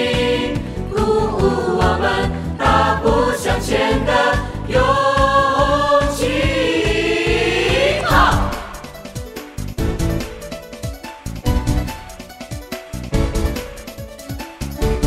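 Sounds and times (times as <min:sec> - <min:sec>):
voices singing together: 0:00.0 - 0:09.0
backing track with steady beat: 0:00.0 - 0:15.0.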